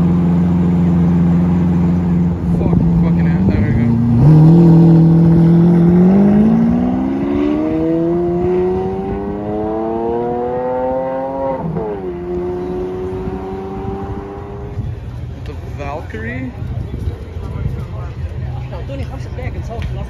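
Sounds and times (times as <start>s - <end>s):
car engine accelerating hard: 0.0s - 15.0s.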